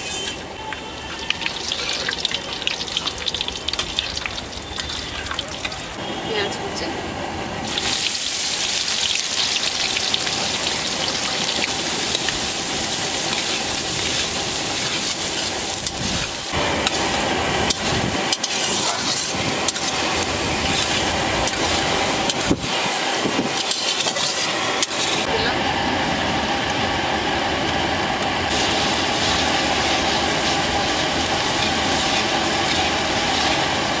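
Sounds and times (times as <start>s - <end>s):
onions sizzling in hot oil: 0.0s - 6.0s, 7.6s - 34.0s
metal spatula scraping and clacking: 17.7s - 22.5s, 23.6s - 25.2s.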